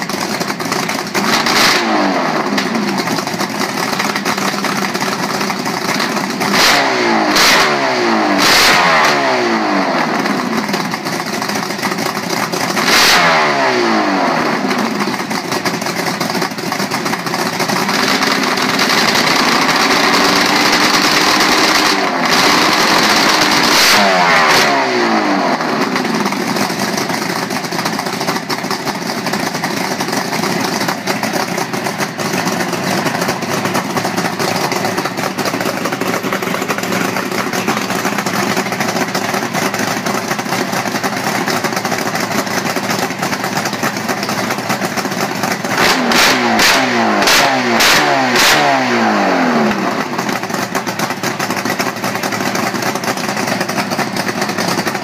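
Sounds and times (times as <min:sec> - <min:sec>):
engine revving: 0:01.2 - 0:03.3, 0:05.9 - 0:10.8, 0:12.7 - 0:15.1, 0:17.7 - 0:27.1, 0:45.5 - 0:50.3.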